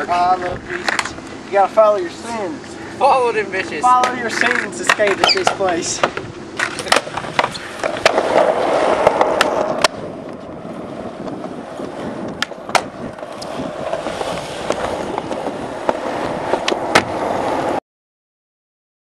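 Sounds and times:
skateboard wheels rolling on concrete: 0:00.0 - 0:17.8
skateboard clacking on ground: 0:00.3 - 0:01.2, 0:03.6 - 0:10.6, 0:11.2 - 0:17.6.

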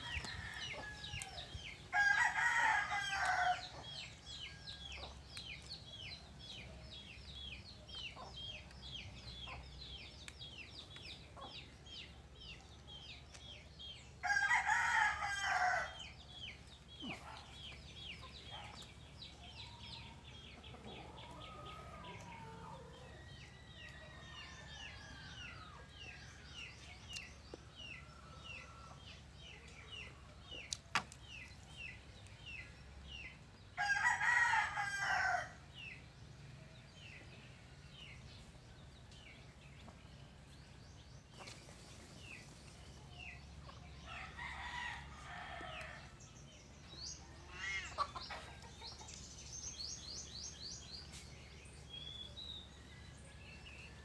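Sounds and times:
rooster crowing: 0:00.0 - 0:03.7, 0:14.2 - 0:16.0.

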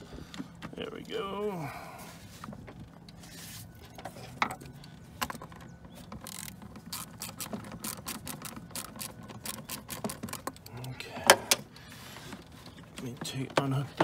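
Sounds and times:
plastic parts clicking and rattling: 0:03.9 - 0:14.0.

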